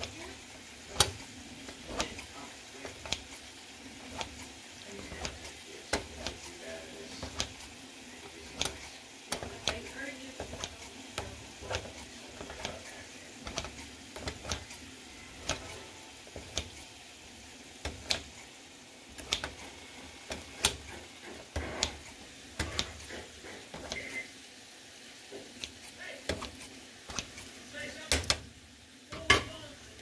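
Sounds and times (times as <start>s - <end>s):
scissors snipping tomatoes: 0.0s - 7.7s, 8.4s - 14.8s, 15.4s - 16.8s, 19.2s - 24.0s, 25.4s - 27.5s
blades tapping plastic container: 0.9s - 3.4s, 5.0s - 6.5s, 7.1s - 7.7s, 8.4s - 14.7s.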